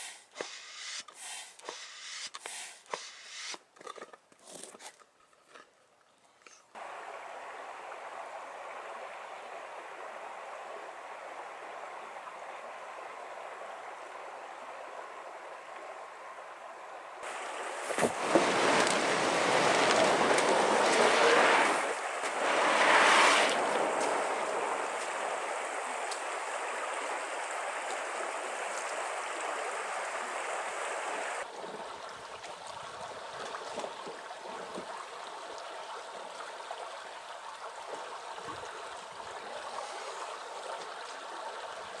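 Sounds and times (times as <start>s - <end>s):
river rushing over stones: 6.8s - 16.1s, 17.2s - 31.6s.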